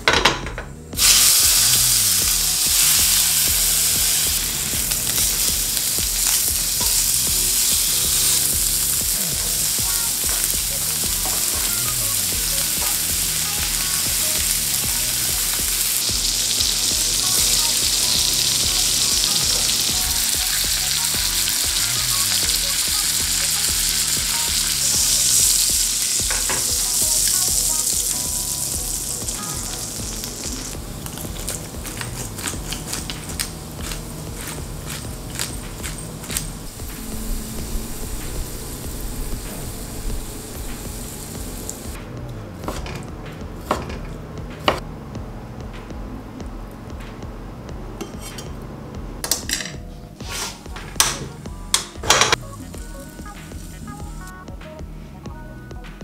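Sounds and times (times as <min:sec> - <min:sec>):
butter frying and foaming: 0:01.0 - 0:42.0
steaks sizzling in a frying pan: 0:01.0 - 0:42.0.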